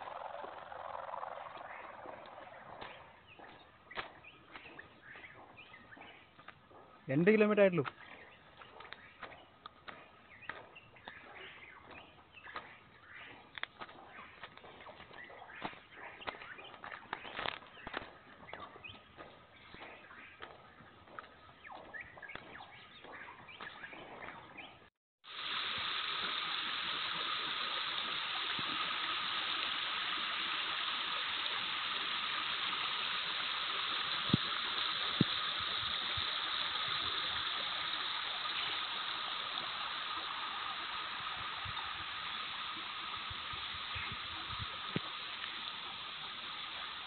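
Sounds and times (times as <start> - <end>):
footsteps on dirt trail: 2.7 - 24.7
stream flowing over rocks: 25.2 - 47.0.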